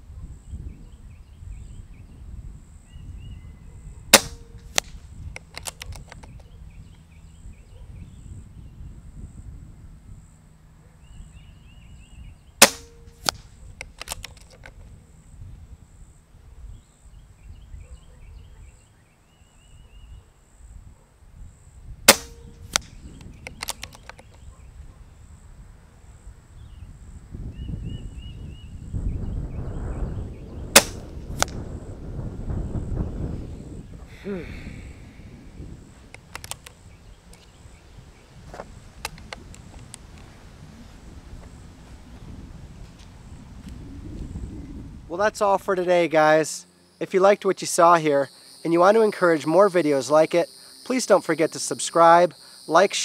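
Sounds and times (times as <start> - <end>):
air rifle shot crack: 4.1 - 5.0, 12.6 - 14.1, 22.1 - 23.0, 30.7 - 31.6
rifle action clicks: 4.1 - 6.4, 12.6 - 14.8, 22.1 - 24.4, 30.8 - 31.6, 36.1 - 37.5
fainter echo crack: 4.2 - 5.0, 12.6 - 13.5, 22.1 - 23.0, 30.8 - 31.6.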